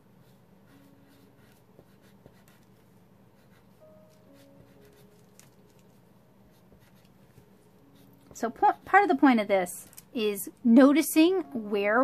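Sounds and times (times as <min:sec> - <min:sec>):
pencil scratching on paper: 0:00.2 - 0:05.2, 0:06.5 - 0:09.2.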